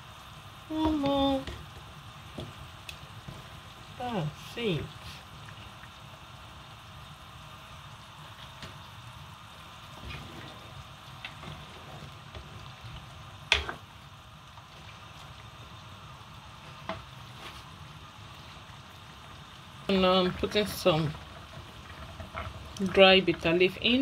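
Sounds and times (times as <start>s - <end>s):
soup bubbling in a pot: 0.0s - 24.0s.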